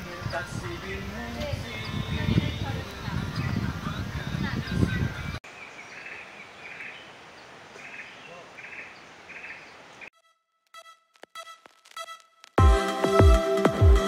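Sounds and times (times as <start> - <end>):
faint background music: 0.0 - 5.4.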